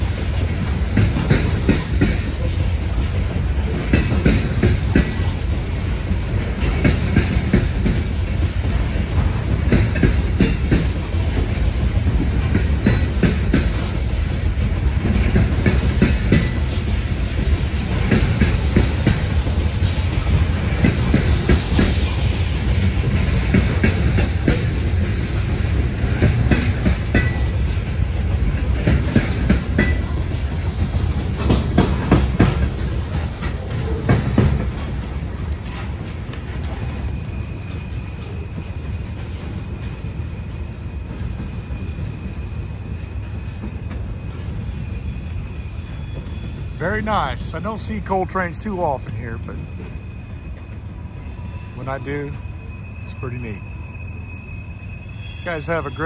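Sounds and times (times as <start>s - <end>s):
wheels clicking over rail joints: 0.0s - 37.4s
rumble of steel train wheels: 0.0s - 56.0s.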